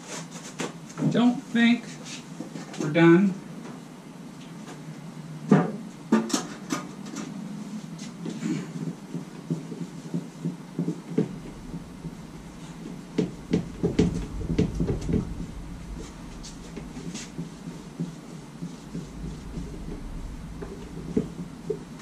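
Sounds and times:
low rumble: 11.1s - 22.0s.

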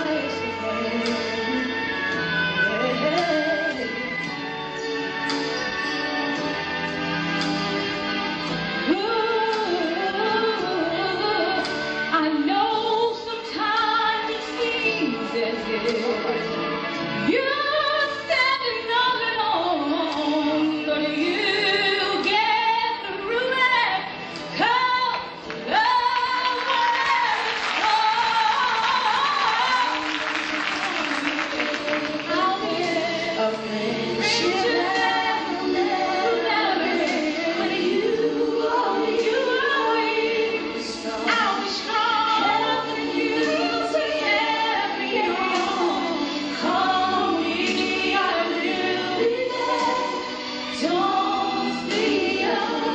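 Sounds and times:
woman singing lead: 0.0s - 4.1s, 8.8s - 16.6s, 17.2s - 52.9s
choir singing: 26.4s - 52.9s.

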